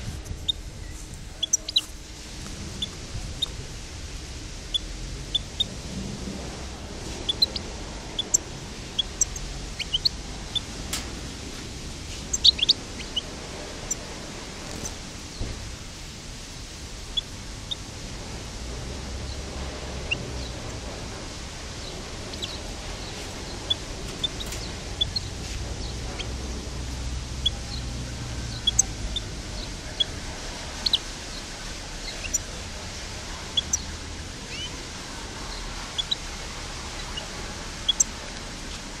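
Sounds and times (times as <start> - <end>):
steady hiss: 0.0 - 39.0
finch chirping: 0.4 - 1.9, 2.7 - 3.6, 4.7 - 5.8, 7.0 - 11.0, 12.1 - 15.4, 17.1 - 17.9, 19.2 - 20.9, 21.8 - 32.5, 33.4 - 34.8, 35.7 - 38.2.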